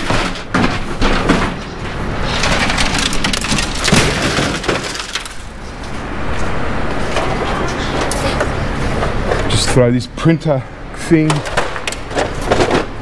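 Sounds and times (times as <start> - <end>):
televisions crashing into bin: 0.0 - 5.4
debris clattering: 0.0 - 5.7, 11.2 - 13.0.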